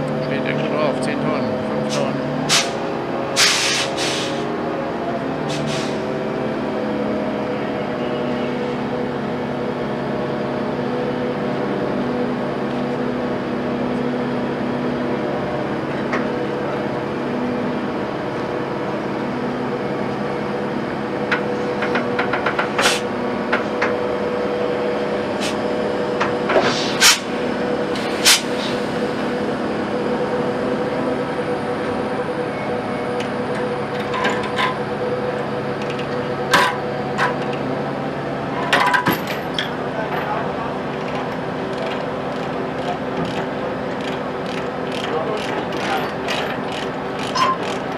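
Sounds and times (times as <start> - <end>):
diesel engine running: 0.0 - 47.9.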